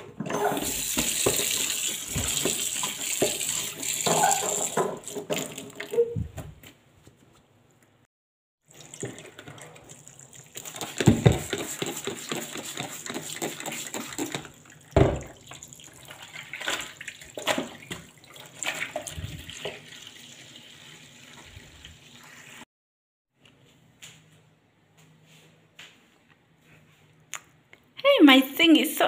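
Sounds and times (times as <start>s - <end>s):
tap water running into sink: 0.6s - 6.0s, 8.7s - 22.2s
water splashing and sloshing: 0.6s - 6.2s, 8.6s - 22.6s.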